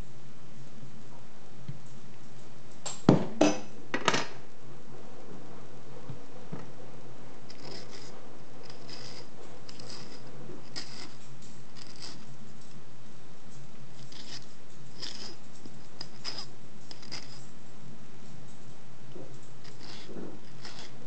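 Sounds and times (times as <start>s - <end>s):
knife scratching avocado flesh: 7.4s - 12.6s, 13.6s - 17.5s, 19.2s - 21.0s.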